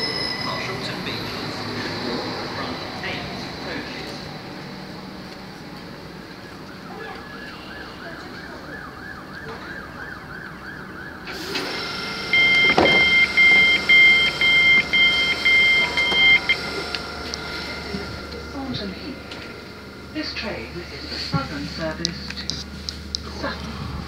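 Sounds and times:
electric train hum: 0.0 - 24.0
two-note electronic door beeps: 11.5 - 18.5.

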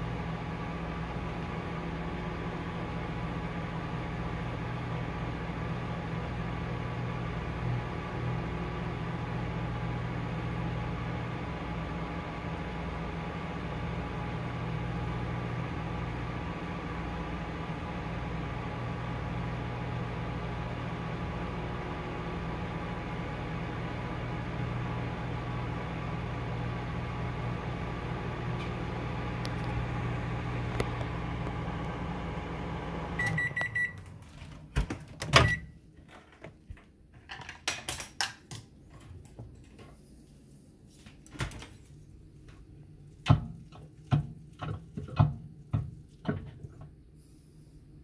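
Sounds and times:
microwave oven humming: 0.0 - 36.0.

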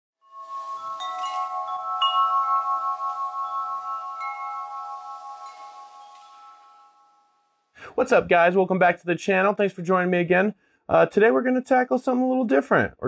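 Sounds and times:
chimes ringing: 0.2 - 7.8.

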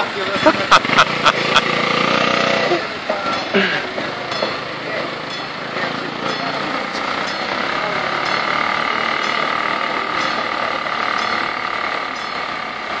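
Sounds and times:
street noise: 0.0 - 13.0
level crossing signal ringing: 3.2 - 13.0.

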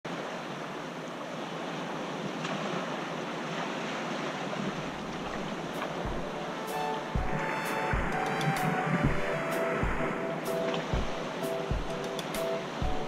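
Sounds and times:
sea waves: 0.1 - 13.0
wind buffets on microphone: 4.6 - 6.4, 7.0 - 10.2, 10.8 - 12.0
wind rushing: 4.9 - 12.0.

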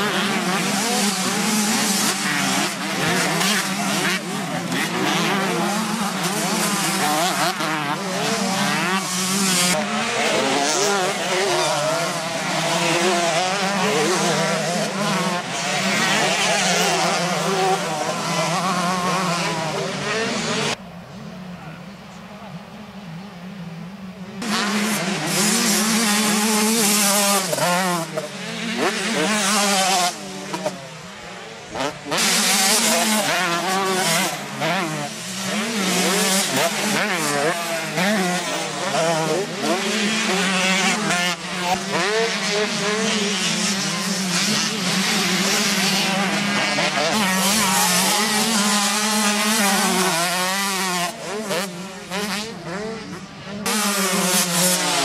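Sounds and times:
motocross bikes revving: 0.0 - 20.8, 23.1 - 55.0.

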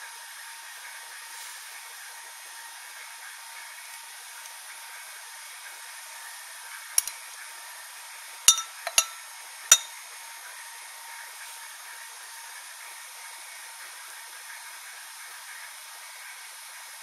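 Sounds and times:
thermometer clinking against glass beaker: 8.5 - 9.9.

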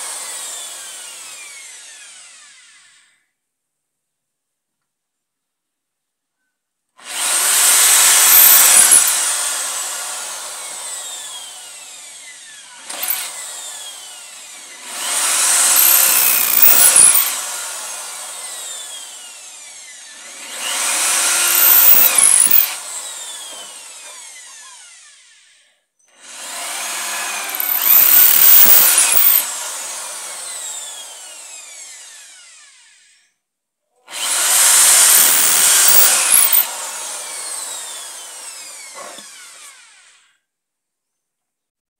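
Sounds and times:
electric drill boring into wood: 0.0 - 3.3, 7.0 - 33.4, 34.0 - 40.5.

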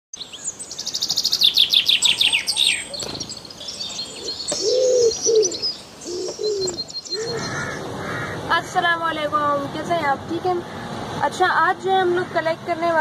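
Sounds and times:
bird trilling and chirping: 0.2 - 8.2
dove cooing: 3.8 - 8.3.

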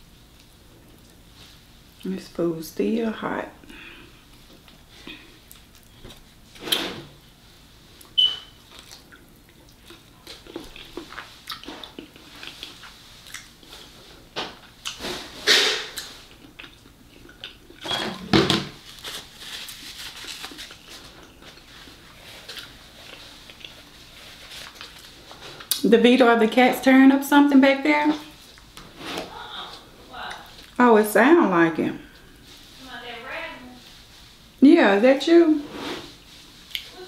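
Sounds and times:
chewing crunchy food: 5.4 - 6.4, 8.0 - 15.0, 15.9 - 17.8, 18.8 - 25.8.

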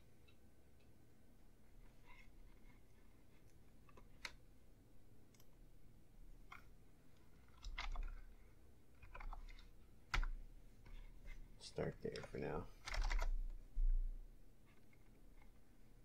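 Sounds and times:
computer mouse clicks: 3.4 - 4.4, 5.3 - 5.5, 7.4 - 8.3, 9.0 - 11.0
keyboard keystrokes: 7.5 - 8.2, 9.0 - 10.4, 12.0 - 13.3.

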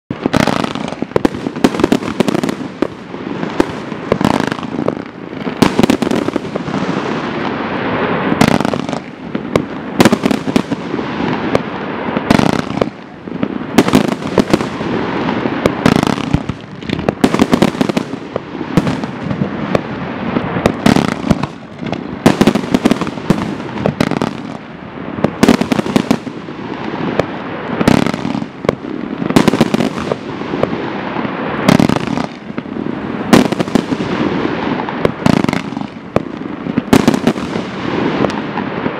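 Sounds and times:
fireworks launch and burst reports: 0.1 - 38.9
fireworks hissing: 0.2 - 38.9.

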